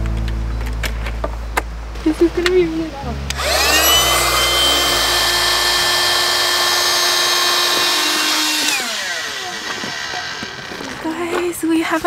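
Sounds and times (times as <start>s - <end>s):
electric air pump whining: 3.3s - 11.2s.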